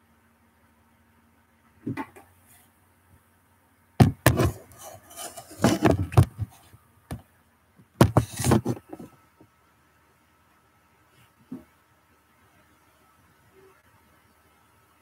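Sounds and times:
handling knocks and rubbing: 0:04.0 - 0:07.2, 0:08.0 - 0:09.2.

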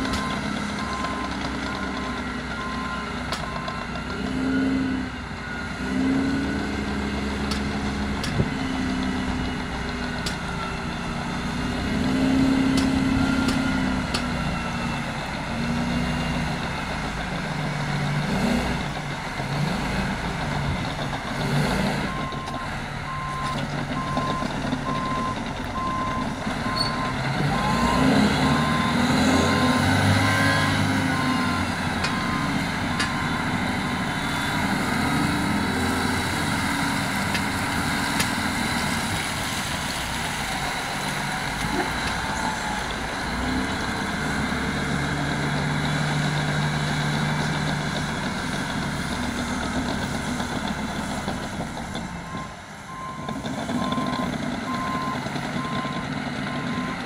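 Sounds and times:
reversing alarm beeping: 0:00.0 - 0:15.4, 0:22.0 - 0:36.0, 0:52.1 - 0:57.0
diesel engine running under load: 0:00.0 - 0:57.0.

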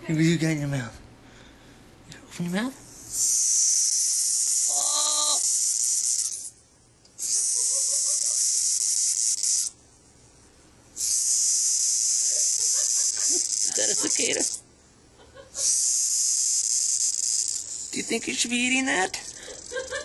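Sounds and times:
cicadas buzzing harshly: 0:03.0 - 0:06.5, 0:07.2 - 0:09.8, 0:11.0 - 0:14.6, 0:15.6 - 0:20.0.

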